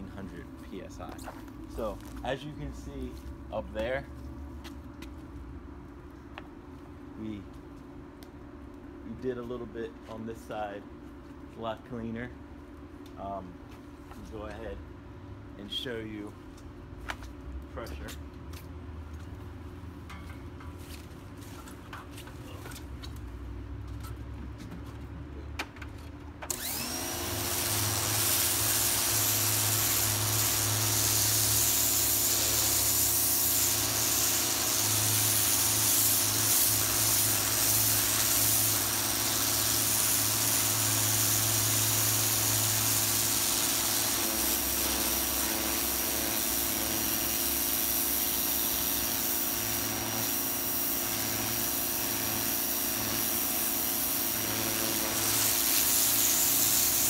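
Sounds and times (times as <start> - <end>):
pressure washer motor whining: 26.5 - 57.0
water jet hissing: 27.2 - 57.0.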